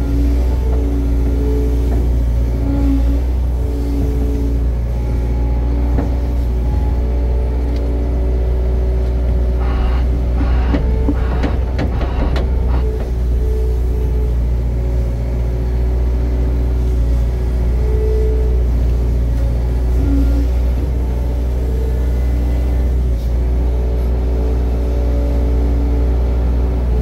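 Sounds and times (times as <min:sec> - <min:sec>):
engine rumbling: 0:00.0 - 0:27.0
rattling and clanking: 0:09.3 - 0:14.3.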